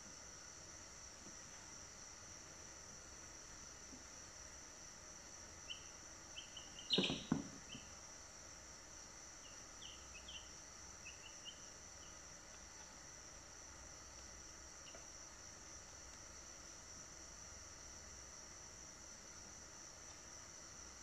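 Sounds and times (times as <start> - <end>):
steady high hiss: 0.0 - 21.0
chicks peeping: 5.7 - 7.9
brief knock: 6.9 - 7.6.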